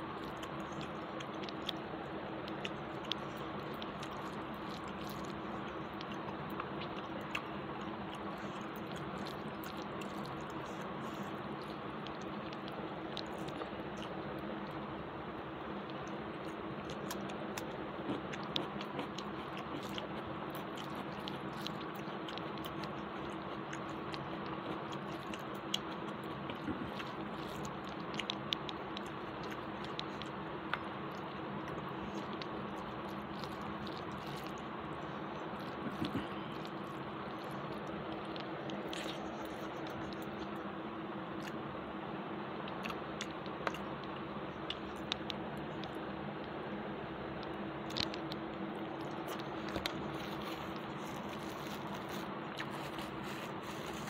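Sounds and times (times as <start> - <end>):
mouth clicks and squelches: 0.0 - 15.0, 15.6 - 40.7, 42.6 - 46.6, 47.3 - 54.0
chewing: 0.0 - 40.7, 41.3 - 41.6, 42.7 - 46.1, 47.3 - 54.0
steady background hum: 0.0 - 54.0
fingers mixing rice on plate: 49.0 - 54.0.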